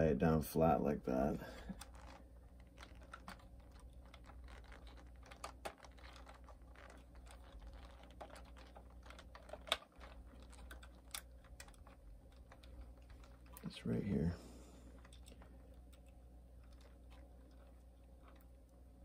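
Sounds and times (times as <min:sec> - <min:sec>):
small plastic clicks: 0:01.7 - 0:13.7.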